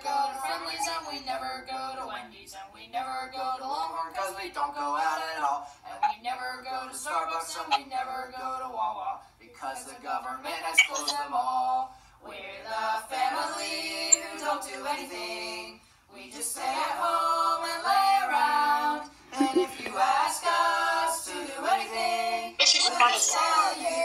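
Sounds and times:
women and children singing: 0.0 - 2.3, 12.3 - 24.0.

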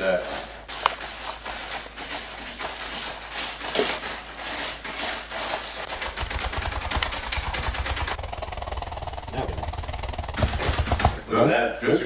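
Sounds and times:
rapid even pounding: 5.9 - 11.6.

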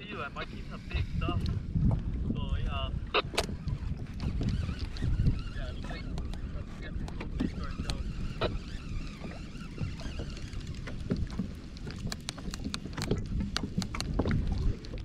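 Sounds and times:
water sloshing against kayak hull: 0.0 - 15.0
wind rumbling on microphone: 0.0 - 15.0
sharp ticks: 7.0 - 14.2.

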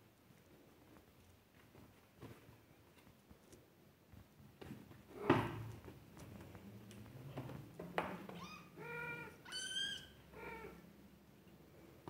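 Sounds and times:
kittens mewing: 8.4 - 10.9.

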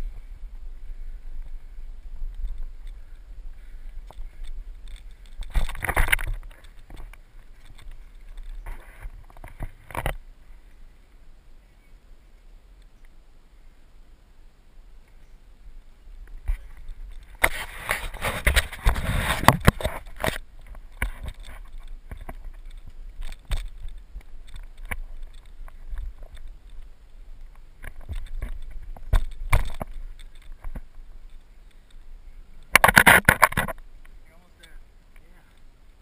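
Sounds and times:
scraping and rustling on microphone: 0.0 - 10.8, 16.2 - 35.6
clicks and knocks: 32.7 - 33.8.

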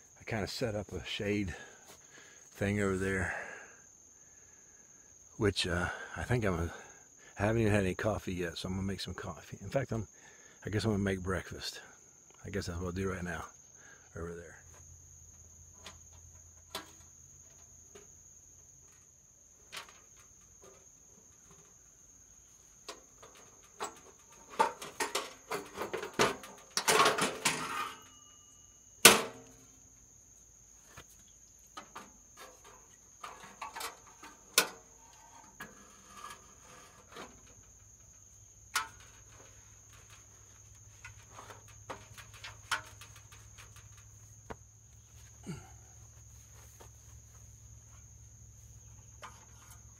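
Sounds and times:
insects droning: 0.0 - 49.9
metal clicks and clatter: 22.9 - 28.1, 31.8 - 34.8, 38.7 - 40.3, 41.0 - 44.2.

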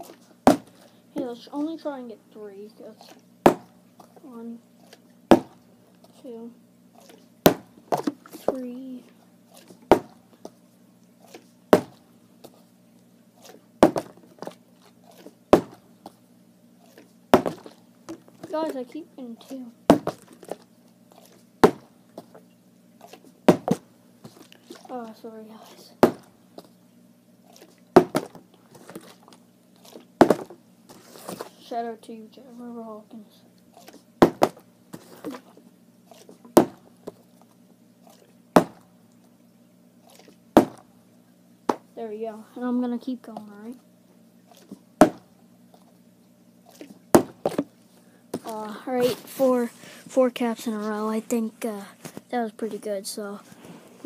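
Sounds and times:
plastic water bottle landing thud: 13.8 - 14.2, 17.4 - 17.7, 21.6 - 21.9, 23.5 - 23.8, 26.0 - 26.3, 28.0 - 29.0, 30.2 - 30.6, 34.2 - 35.4, 36.5 - 36.8, 38.6 - 38.8, 40.6 - 40.8, 47.1 - 47.7.

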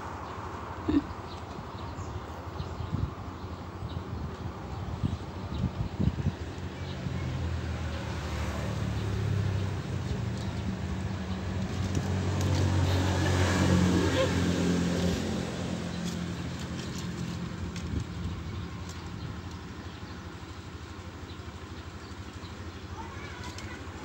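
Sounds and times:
engine running steadily: 8.9 - 24.0.

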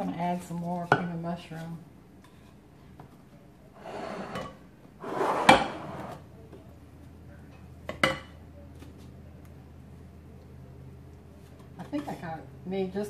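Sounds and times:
utensils scraping a pot: 3.8 - 6.2.

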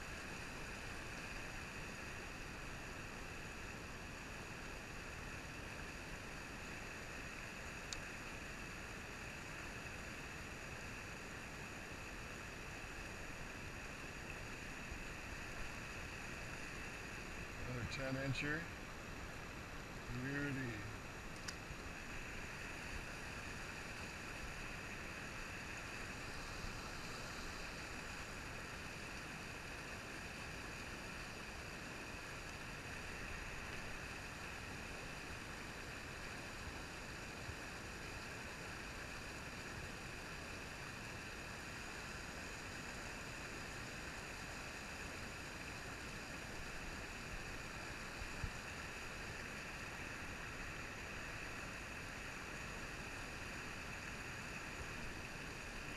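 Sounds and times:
stream rapids rushing: 0.0 - 55.9.

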